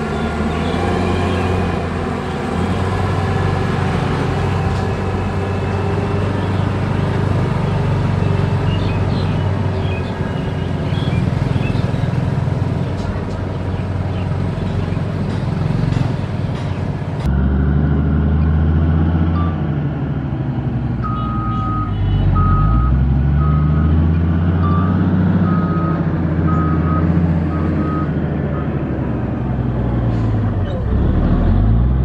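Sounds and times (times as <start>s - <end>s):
diesel engine under load: 0.0s - 32.0s
reversing alarm beeping: 21.0s - 24.0s, 24.6s - 28.8s.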